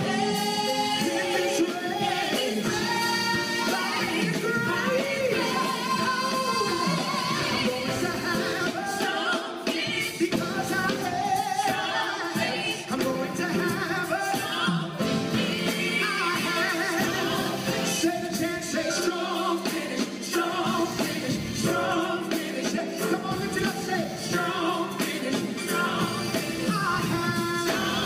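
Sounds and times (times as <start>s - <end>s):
women's backing vocals: 0.0s - 10.3s
drums: 0.0s - 28.0s
man singing lead: 0.0s - 28.0s
bass guitar: 25.2s - 28.0s.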